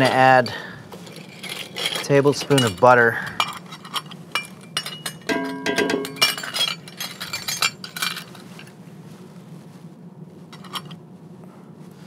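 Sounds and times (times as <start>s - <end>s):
metal measuring spoons jangling: 1.1s - 8.3s.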